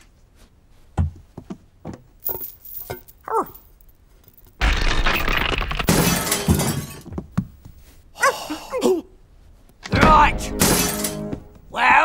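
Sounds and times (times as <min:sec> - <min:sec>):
cartoon glass and furniture crash: 0:04.6 - 0:07.1, 0:10.0 - 0:11.5.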